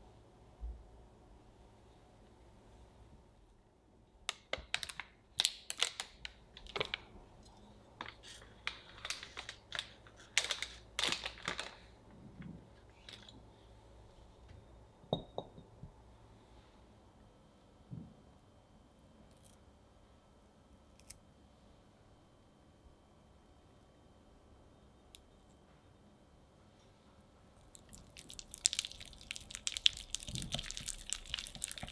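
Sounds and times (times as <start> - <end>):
foil crinkling: 4.6 - 7.1, 8.0 - 11.9, 27.8 - 31.9.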